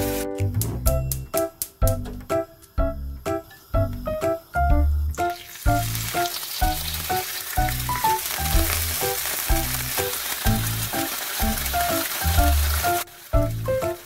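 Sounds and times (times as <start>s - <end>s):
background music with beat: 0.0s - 5.9s, 13.4s - 14.0s
food sizzling in a pan: 5.1s - 14.0s.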